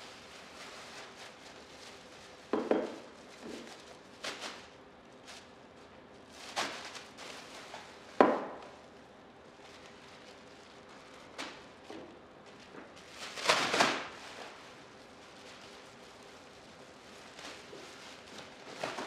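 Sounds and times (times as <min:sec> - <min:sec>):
plastic bag rustling: 0:00.0 - 0:19.0
objects knocking on tabletop: 0:02.6 - 0:03.0.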